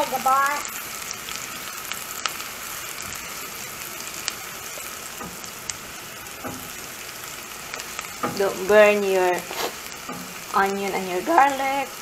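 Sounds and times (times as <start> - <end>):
onion sizzling in butter: 0.0 - 12.0
spatula clicking against pan: 6.4 - 6.8.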